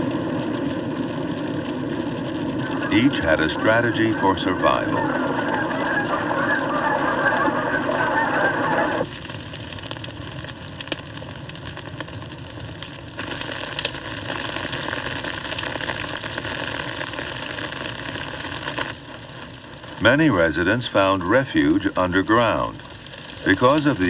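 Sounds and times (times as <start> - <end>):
burning grass crackling: 0.0 - 24.0
geese honking: 2.6 - 9.0.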